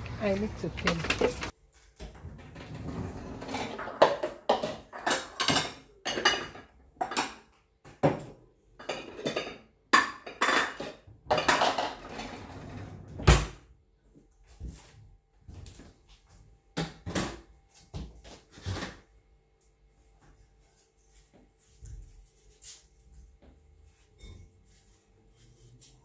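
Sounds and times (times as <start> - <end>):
dishes clattering: 3.4 - 12.3
knife clinking and scraping: 23.9 - 26.0.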